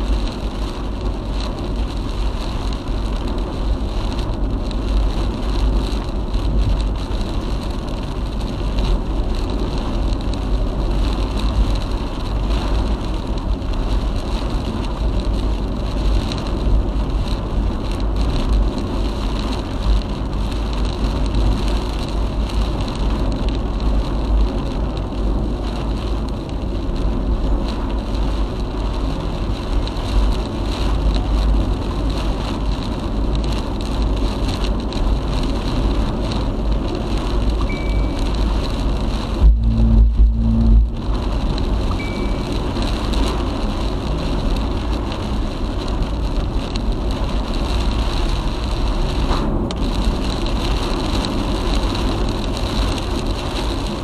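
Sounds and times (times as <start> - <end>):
rain on a car: 0.0 - 54.0
road and wind noise: 0.0 - 54.0
deep rumble: 33.5 - 53.6.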